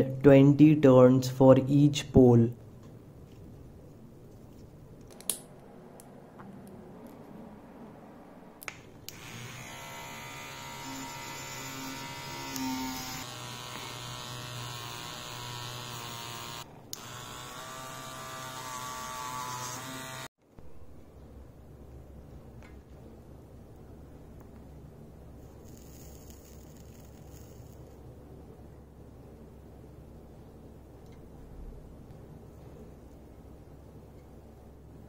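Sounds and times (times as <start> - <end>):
rotary tool high whine: 9.1 - 20.3.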